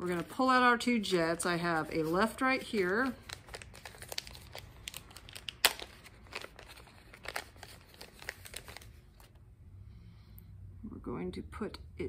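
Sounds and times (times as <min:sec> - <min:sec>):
plastic bag crinkling: 0:01.4 - 0:09.4.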